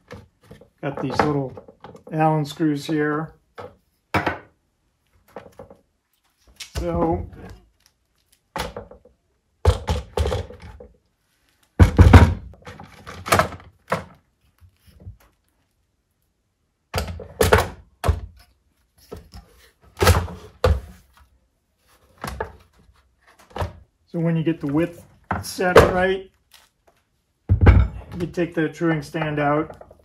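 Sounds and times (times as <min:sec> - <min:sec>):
metal stand clunking on workbench: 0:27.5 - 0:28.3.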